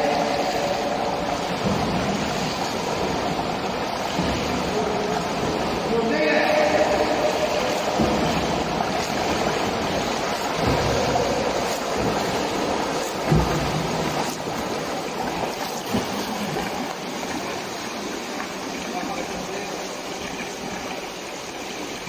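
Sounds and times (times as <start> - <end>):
swimming splashes: 0.0 - 22.0
water wash: 0.0 - 22.0.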